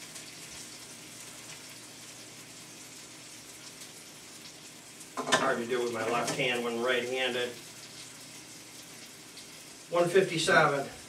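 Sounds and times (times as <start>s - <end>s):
meat sizzling in a frying pan: 0.0s - 11.0s.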